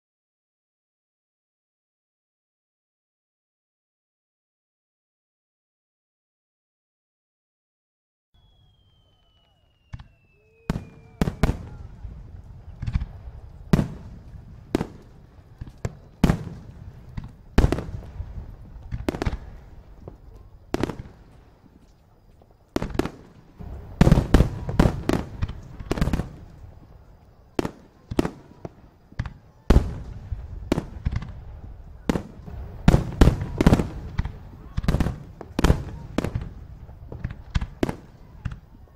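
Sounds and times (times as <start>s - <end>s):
fireworks booming: 8.4s - 38.9s.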